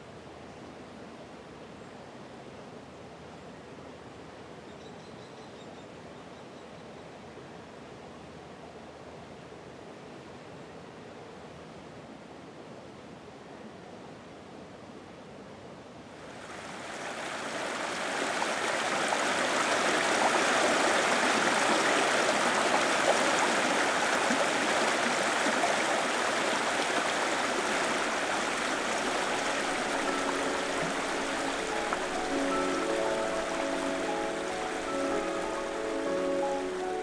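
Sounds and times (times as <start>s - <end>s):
brook rushing over rocks: 16.4s - 37.0s.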